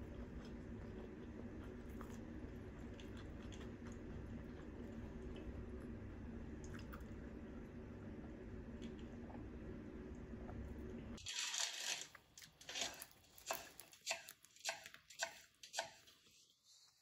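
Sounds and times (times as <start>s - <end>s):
sharp crisp chopping strokes: 12.7s - 16.1s.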